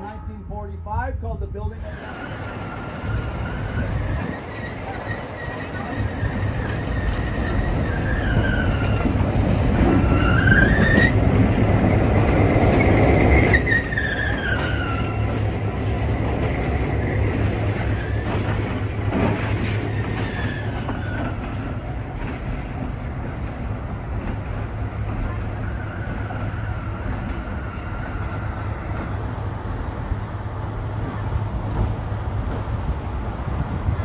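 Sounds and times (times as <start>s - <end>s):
diesel locomotive rumble: 0.0s - 34.0s
train wheels squealing: 2.1s - 9.3s, 9.9s - 11.3s, 12.8s - 15.5s, 17.8s - 18.6s, 19.7s - 21.6s.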